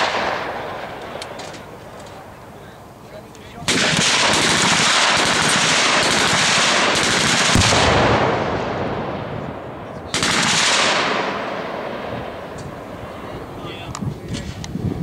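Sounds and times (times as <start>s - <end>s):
machine-gun fire: 0.0s - 1.0s, 3.6s - 9.2s, 10.1s - 12.1s.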